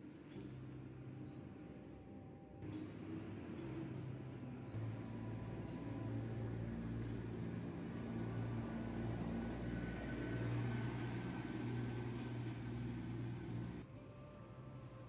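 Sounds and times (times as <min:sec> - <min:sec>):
vehicle engine running: 0:04.8 - 0:13.8.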